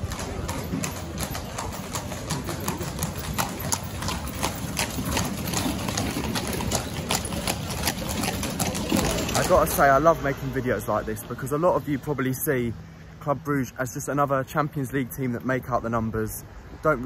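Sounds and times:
hooves clip-clopping on cobblestones: 0.0s - 11.7s
low rumble of carriages: 0.0s - 17.0s.

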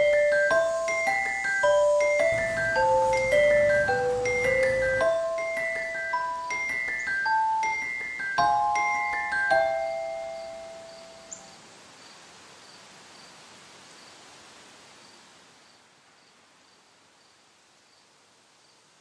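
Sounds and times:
glockenspiel notes ringing: 0.0s - 11.4s
cricket chirping: 0.0s - 14.2s
soft hiss: 9.6s - 19.0s.

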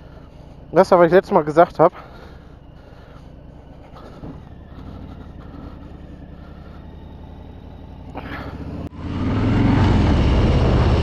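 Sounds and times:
motorcycle engine idling: 0.0s - 8.9s
motorcycle accelerating away: 4.3s - 11.0s.

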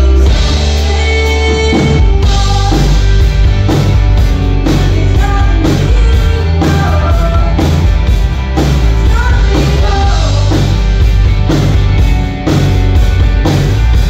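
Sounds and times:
woman singing: 0.0s - 3.1s, 4.6s - 7.8s, 9.0s - 10.7s
drums: 0.0s - 14.0s
electric bass: 0.0s - 14.0s.

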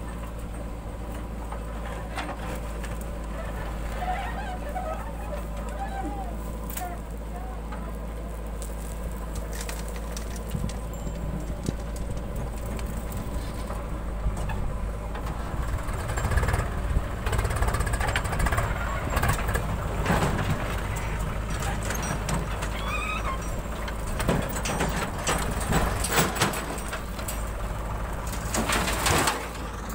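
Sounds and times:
diesel engine running under load: 0.0s - 29.9s
soil and stones clattering: 0.1s - 29.9s.

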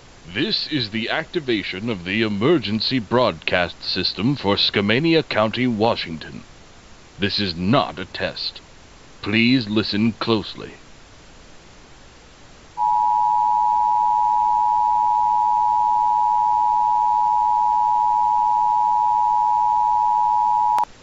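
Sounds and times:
faint steady hiss: 0.0s - 21.0s
two-tone alarm tone: 12.8s - 20.8s.

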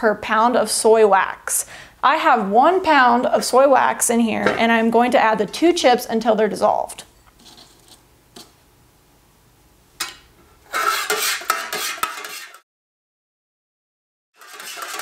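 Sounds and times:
spoon stirring and clinking in pitcher: 10.8s - 12.6s, 14.4s - 15.0s.

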